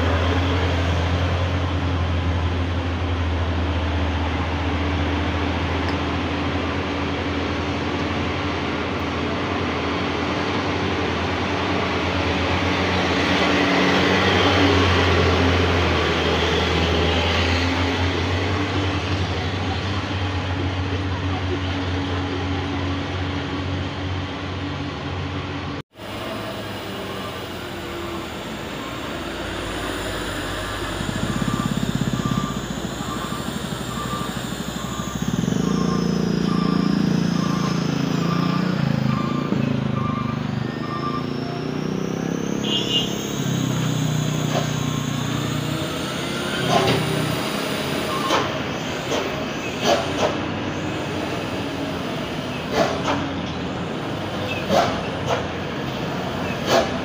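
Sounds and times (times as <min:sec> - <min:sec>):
diesel trucks climbing: 0:00.0 - 0:57.0
reversing alarm beeping: 0:26.0 - 0:49.5.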